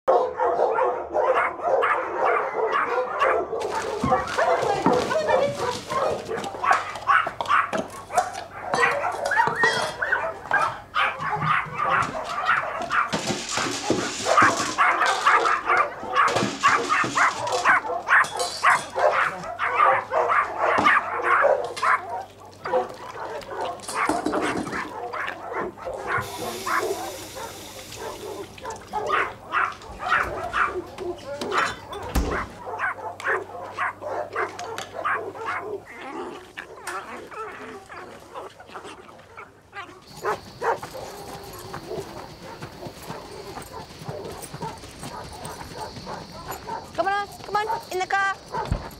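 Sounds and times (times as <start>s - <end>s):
dogs yapping and barking: 0.1s - 48.9s
hiss: 26.2s - 28.6s.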